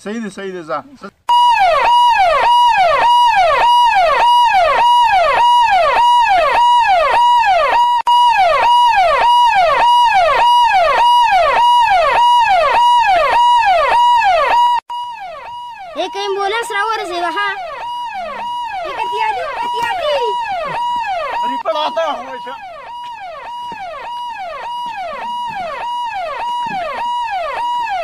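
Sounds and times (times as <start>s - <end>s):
emergency vehicle siren: 1.3s - 28.0s.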